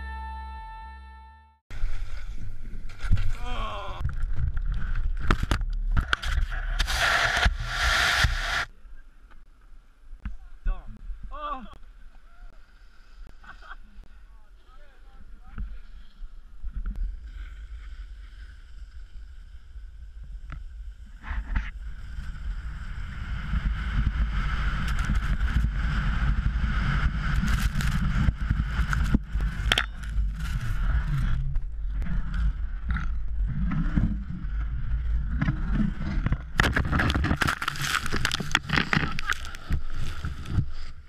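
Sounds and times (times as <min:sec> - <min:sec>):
wind rushing over camera: 0:01.7 - 0:08.7, 0:15.6 - 0:41.0
skis scraping on snow: 0:06.2 - 0:08.7, 0:21.0 - 0:31.6, 0:36.8 - 0:41.0
snow spraying over camera: 0:06.7 - 0:08.7, 0:23.9 - 0:31.2.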